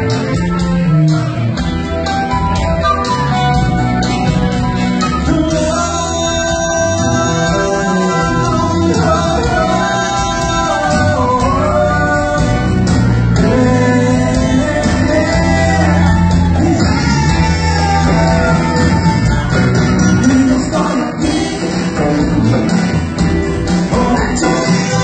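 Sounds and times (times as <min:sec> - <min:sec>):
guitar: 0:00.0 - 0:25.0
steady bass line: 0:00.0 - 0:25.0
person singing: 0:05.2 - 0:23.0, 0:23.6 - 0:25.0.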